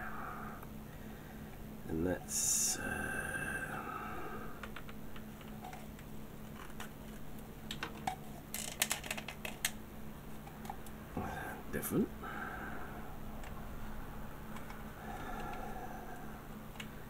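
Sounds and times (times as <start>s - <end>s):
plastic model parts clicking: 7.7s - 9.8s.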